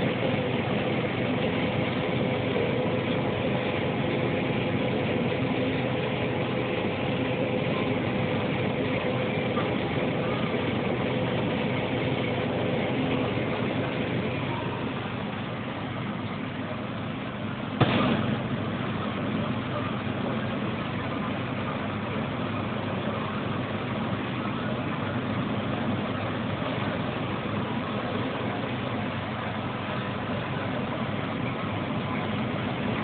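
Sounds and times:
combine harvester drone: 0:00.0 - 0:33.0.

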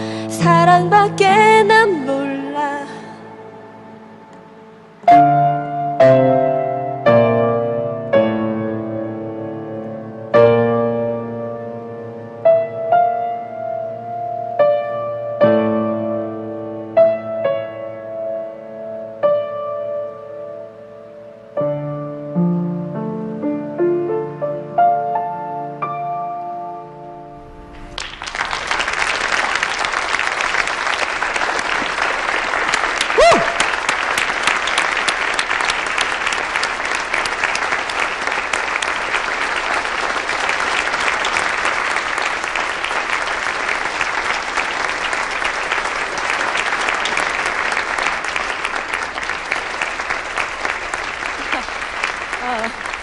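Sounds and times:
piano song: 0:00.0 - 0:53.0
audience applause: 0:27.4 - 0:53.0.

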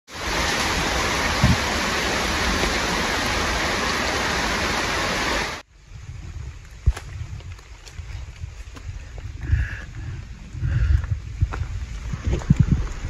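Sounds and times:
heavy rain pouring: 0:00.1 - 0:05.6.

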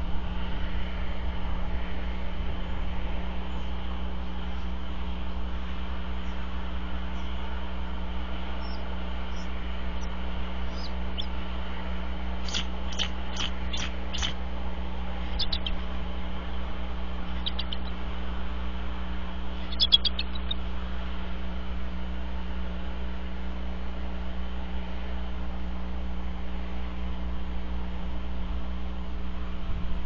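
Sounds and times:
low electrical hum: 0:00.0 - 0:30.0
eagle chirping: 0:08.6 - 0:11.5, 0:12.4 - 0:14.4, 0:15.2 - 0:15.9, 0:17.2 - 0:18.0, 0:19.6 - 0:20.6.

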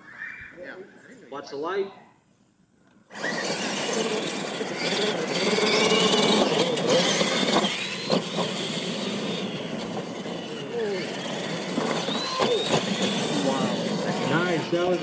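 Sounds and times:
electric motors whining: 0:03.1 - 0:15.0
tyres churning dirt: 0:03.1 - 0:15.0.

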